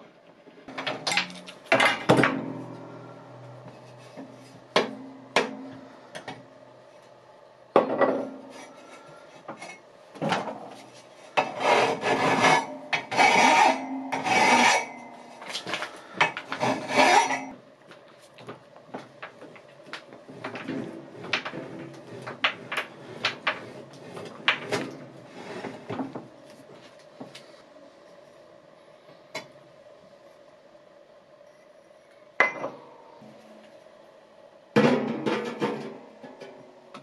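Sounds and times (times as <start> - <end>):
file rasping on steel pipe: 11.4 - 15.0, 16.5 - 17.5.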